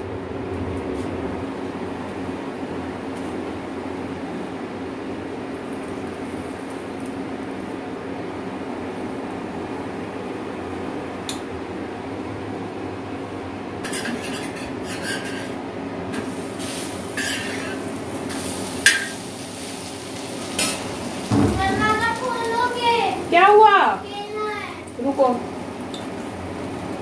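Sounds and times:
spoon scraping iron griddle: 0:13.8 - 0:16.3, 0:17.1 - 0:19.2.

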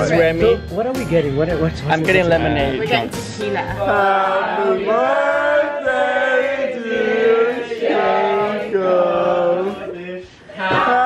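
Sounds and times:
men singing chant-like notes: 0:03.8 - 0:11.0.

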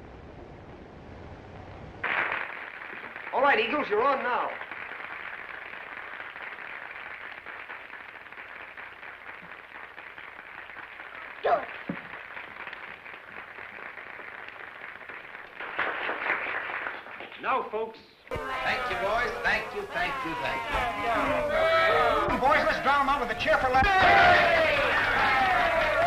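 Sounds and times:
film soundtrack hiss: 0:00.0 - 0:26.0
sharp crack: 0:02.0 - 0:03.8, 0:11.4 - 0:17.4.

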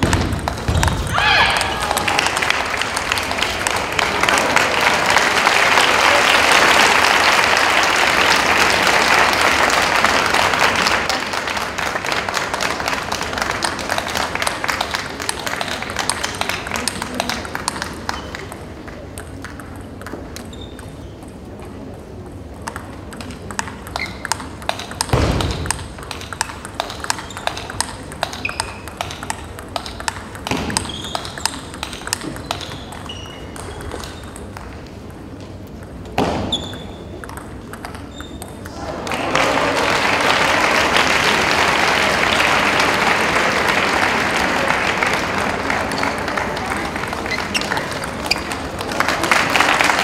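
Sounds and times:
crowd clapping: 0:00.0 - 0:19.5, 0:38.7 - 0:50.0
table tennis ball ticking: 0:14.8 - 0:38.7.

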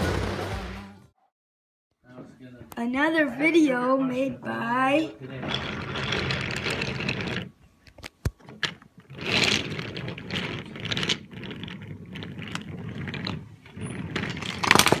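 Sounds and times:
wooden toy train rattling on table: 0:05.4 - 0:07.6, 0:08.4 - 0:15.0.

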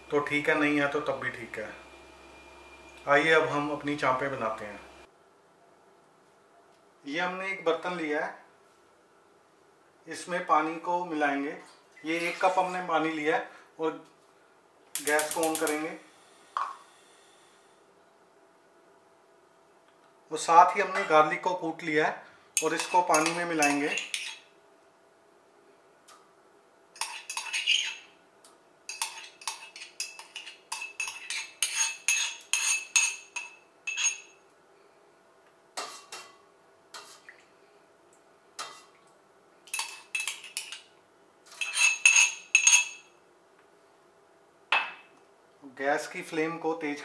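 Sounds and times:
steel spoon clinking on bowl: 0:22.6 - 0:24.4, 0:41.5 - 0:43.1.

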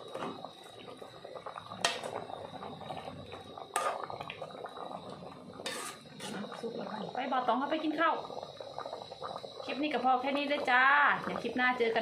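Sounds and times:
ladle stirring soup: 0:01.2 - 0:06.6.

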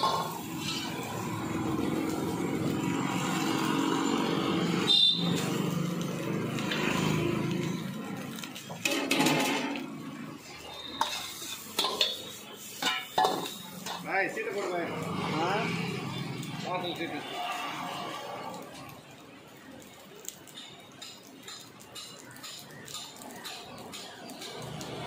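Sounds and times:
steel ladle scraping and clanking: 0:00.0 - 0:01.4, 0:08.6 - 0:14.7
food sizzling in a wok: 0:00.0 - 0:25.0.

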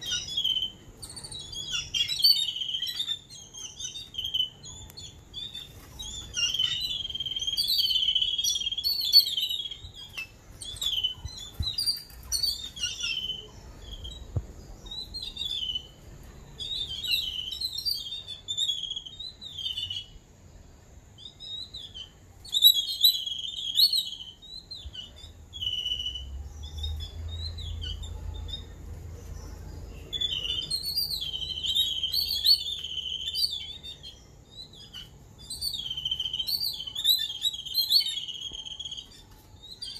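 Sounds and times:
birds chattering squeaky calls: 0:00.0 - 0:20.2, 0:21.1 - 0:39.9.

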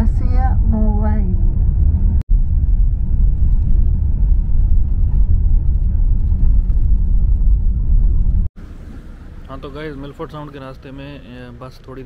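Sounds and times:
coach engine and road noise: 0:00.0 - 0:12.0.

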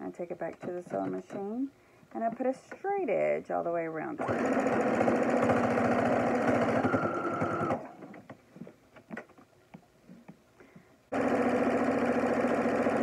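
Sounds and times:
sewing machine stitching: 0:04.2 - 0:08.0, 0:11.1 - 0:13.0.

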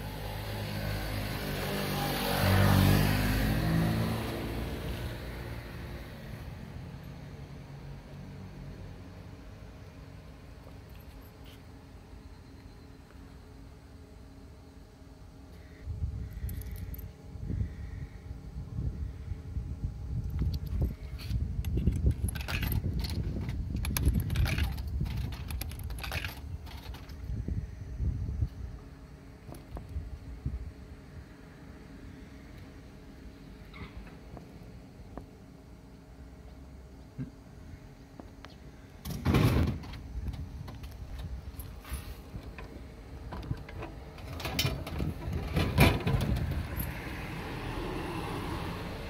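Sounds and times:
coins clinking into vending machine: 0:22.1 - 0:23.2, 0:23.8 - 0:27.1.

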